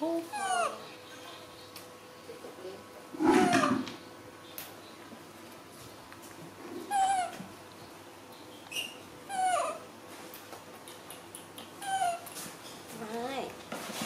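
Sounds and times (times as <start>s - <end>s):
baby monkey crying: 0.3s - 0.9s, 3.4s - 3.9s, 6.9s - 7.4s, 8.7s - 9.9s, 11.8s - 12.3s.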